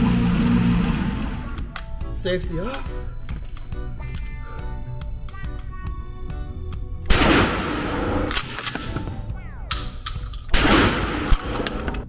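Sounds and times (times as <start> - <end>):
shotgun blasts indoors: 7.0 - 12.0.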